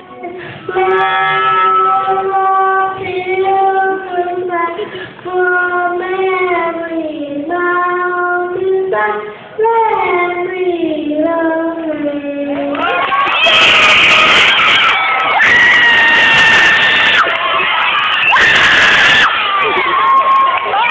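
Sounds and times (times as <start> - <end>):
girl singing: 0.0 - 13.0.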